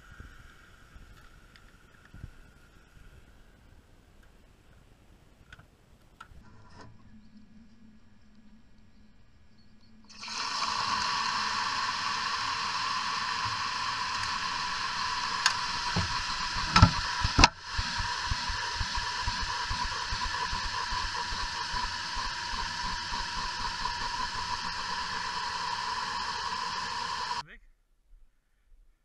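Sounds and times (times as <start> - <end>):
calcium carbide fizzing: 10.1 - 27.4.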